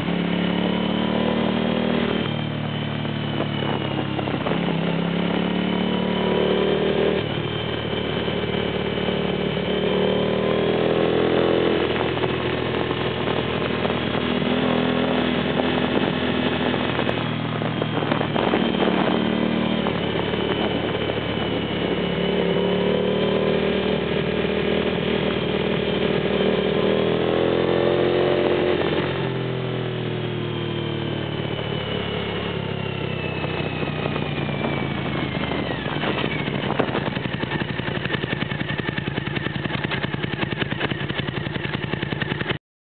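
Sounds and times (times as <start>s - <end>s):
motorcycle engine running hard: 0.0s - 42.6s
wind rush: 11.7s - 22.6s, 33.3s - 39.1s.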